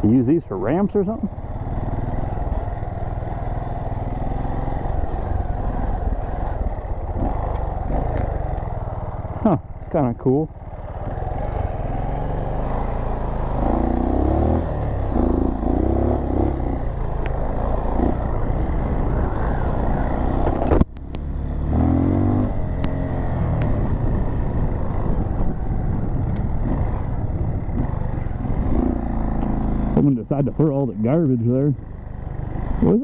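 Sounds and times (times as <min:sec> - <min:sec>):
motorcycle engine revving: 0:00.0 - 0:33.0
wind noise on microphone: 0:23.6 - 0:28.8.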